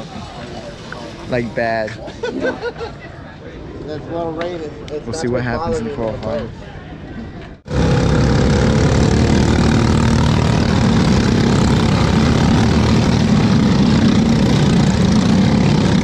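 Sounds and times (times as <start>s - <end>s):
kart engines driving past: 7.7s - 16.0s.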